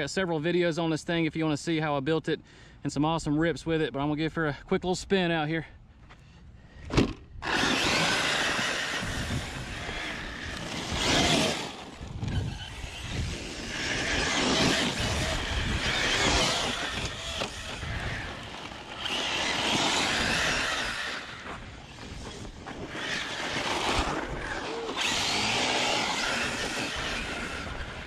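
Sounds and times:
short thump: 6.8 - 7.3
electric motor whining: 7.4 - 28.0.

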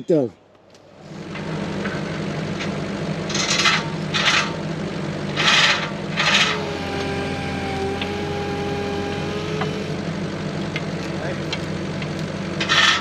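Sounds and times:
loader engine idling: 0.0 - 13.0
steady whine: 0.0 - 13.0
metal scraping: 1.0 - 4.7, 5.3 - 6.9, 12.6 - 13.0.

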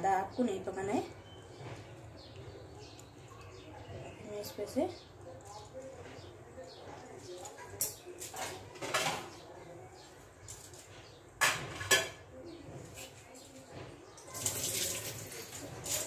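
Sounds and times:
water poured into a metal sink: 14.2 - 16.0.

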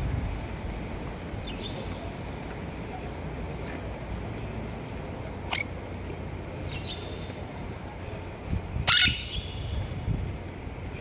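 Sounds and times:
parakeet squawk: 8.9 - 9.6.

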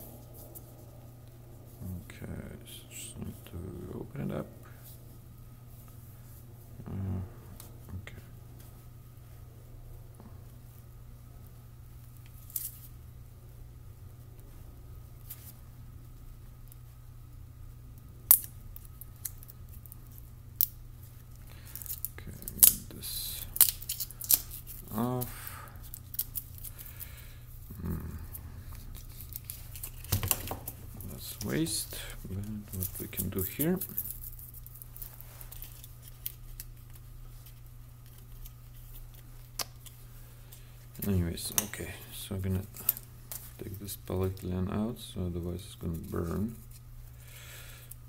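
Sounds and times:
steady low hum: 0.0 - 48.0
foil tape clicks and crinkles: 18.2 - 27.1, 28.7 - 40.0
rustling: 18.4 - 44.5.

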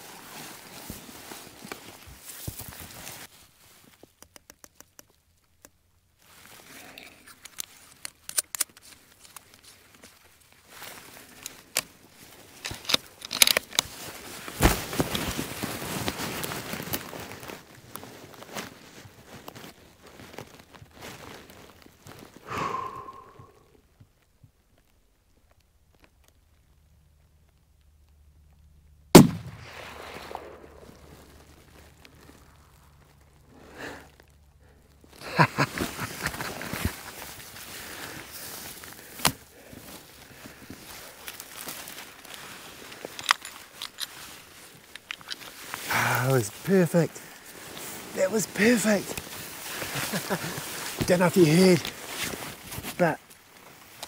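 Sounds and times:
clothing and dry grass rustling: 0.0 - 4.2, 6.0 - 26.9, 29.2 - 54.0
sharp clicks and rustles: 1.6 - 6.6, 7.2 - 22.4, 40.7 - 45.9
sharp clicks and knocks: 4.0 - 5.8
rifle shot with echo: 29.2 - 31.1.

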